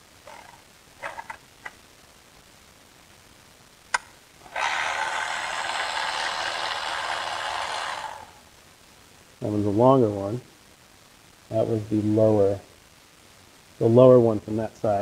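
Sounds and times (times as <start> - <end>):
cordless ratchet running: 4.5 - 8.3.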